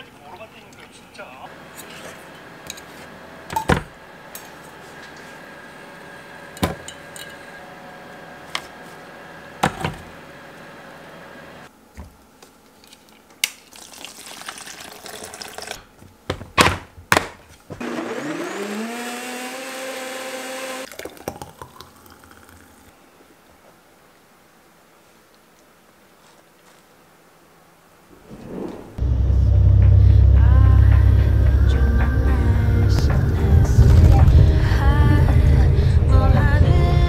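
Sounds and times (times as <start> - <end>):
blender motor whining: 17.8 - 20.9.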